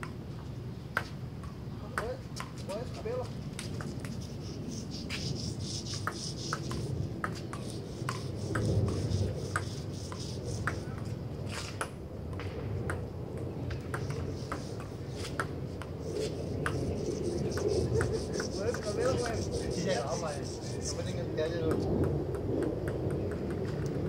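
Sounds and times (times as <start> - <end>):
table tennis ball clicking: 6.0 - 11.0, 11.8 - 15.9, 21.7 - 24.0.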